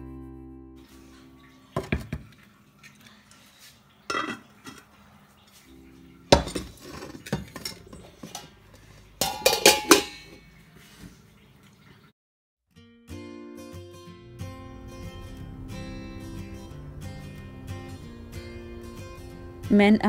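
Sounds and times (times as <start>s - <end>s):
cookware clinking: 4.0s - 4.9s, 5.7s - 10.5s
ringing metal clangs: 9.2s - 10.4s.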